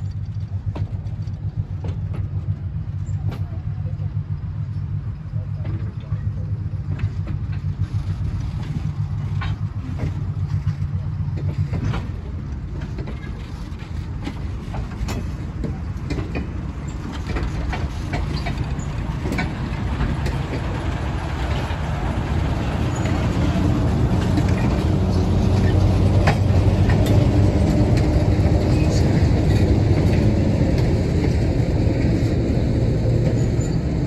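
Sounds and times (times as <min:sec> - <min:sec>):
diesel locomotive drone: 0:00.0 - 0:34.0
train wheels clicking on rails: 0:00.0 - 0:34.0.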